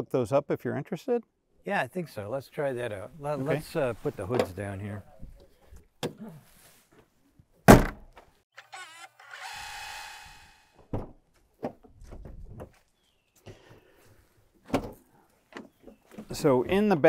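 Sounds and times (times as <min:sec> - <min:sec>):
van hood slamming shut: 0:07.7 - 0:08.0
motor whir: 0:08.6 - 0:10.7
light thuds and clunks: 0:10.8 - 0:12.8, 0:14.6 - 0:16.8.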